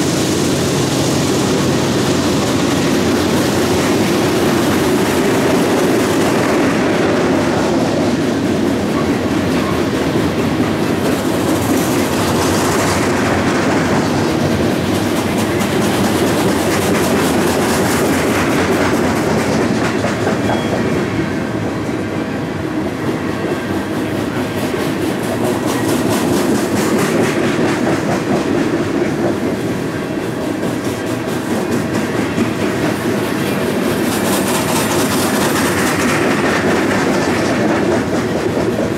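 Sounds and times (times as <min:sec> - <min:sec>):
freight train wheels rumbling: 0:00.0 - 0:38.9.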